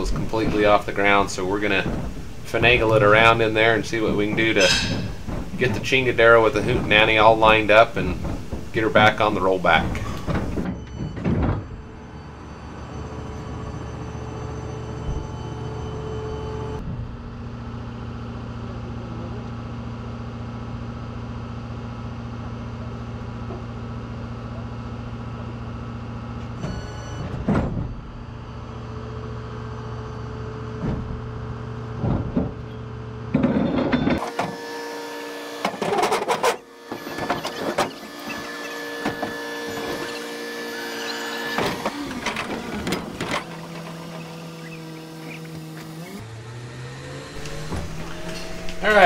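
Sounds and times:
short knocks: 0.0 - 11.8
clattering and clunks: 0.0 - 12.0, 30.8 - 34.5, 35.6 - 46.2
tow truck engine hum: 0.0 - 49.0
high steady whine: 41.0 - 49.0.

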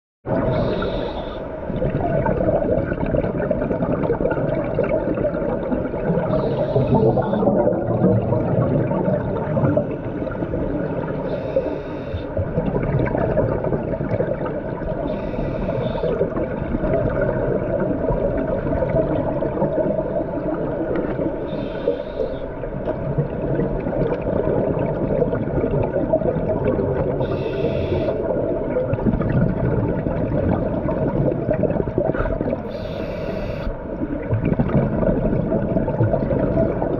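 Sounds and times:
underwater rumble and regulator bubbles: 0.2 - 36.9
regulator breath hiss: 0.5 - 1.5, 11.3 - 12.3, 15.1 - 16.2, 21.4 - 22.5, 27.2 - 28.2, 32.7 - 33.7.

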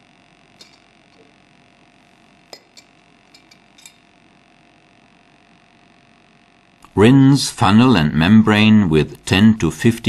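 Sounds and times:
faint steady hum: 0.0 - 10.0
glassware clicking and tapping: 0.6 - 1.3, 2.5 - 4.1.

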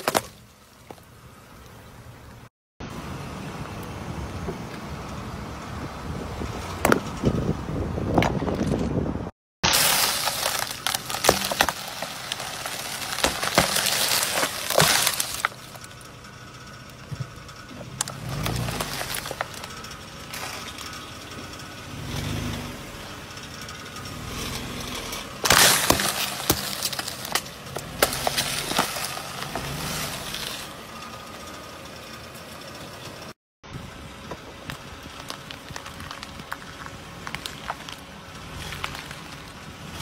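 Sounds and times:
tyre crushing brittle objects: 0.0 - 1.0, 9.6 - 15.9, 18.0 - 21.1, 25.1 - 30.7, 34.6 - 40.0.

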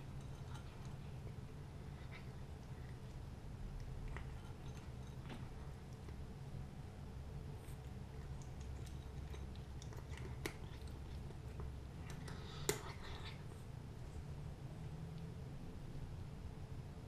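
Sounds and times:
cat crunching dry kibble: 3.8 - 6.2, 7.6 - 13.4.

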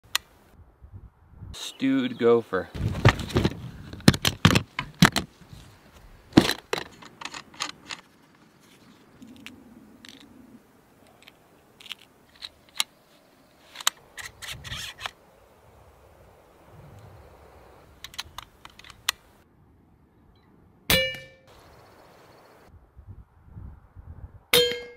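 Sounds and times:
case latches snapping open: 3.0 - 5.3, 6.3 - 8.0
plastic clicks of gear handled: 6.4 - 8.1, 11.0 - 12.9, 18.0 - 19.2.

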